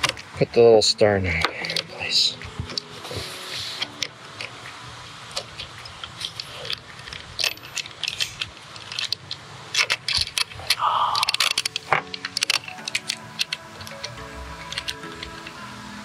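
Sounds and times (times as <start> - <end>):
knob threading onto bolt clicks: 11.2 - 15.6.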